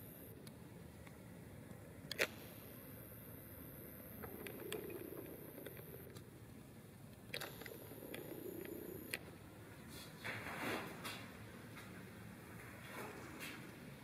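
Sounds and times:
thin high whine: 0:00.0 - 0:00.4, 0:02.2 - 0:06.2, 0:07.4 - 0:09.4.

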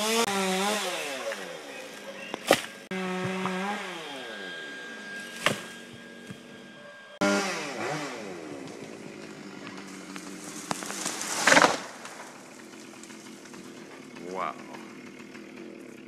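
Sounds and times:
chainsaw cutting: 0:00.0 - 0:16.0
treetop crashing to ground: 0:02.3 - 0:03.4, 0:05.2 - 0:06.4, 0:10.6 - 0:12.4.

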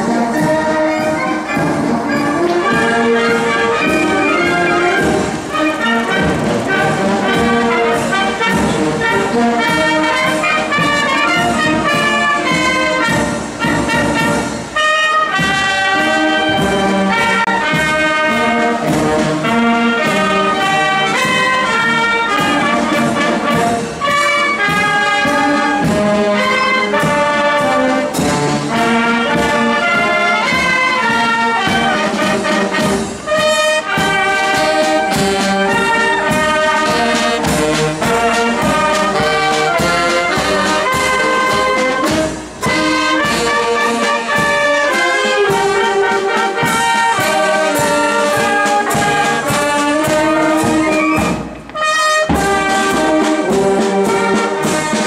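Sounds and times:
marching wind band playing: 0:00.0 - 0:55.0
snare and bass drum beats: 0:00.0 - 0:55.0.

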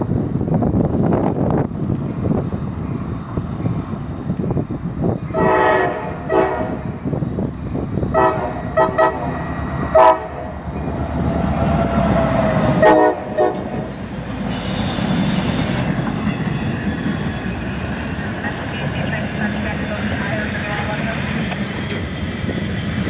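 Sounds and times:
train engine and wheels rumbling: 0:00.0 - 0:23.0
locomotive air horn blasts: 0:05.3 - 0:06.9, 0:08.1 - 0:09.3, 0:09.9 - 0:10.6, 0:12.7 - 0:13.9, 0:14.5 - 0:15.9
loud high hiss: 0:14.4 - 0:15.9.

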